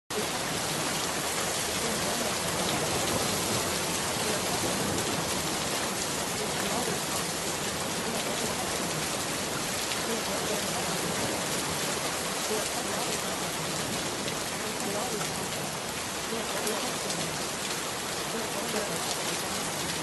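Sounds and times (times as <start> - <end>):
steady rain: 0.1 - 20.0
faint voice: 18.2 - 20.0.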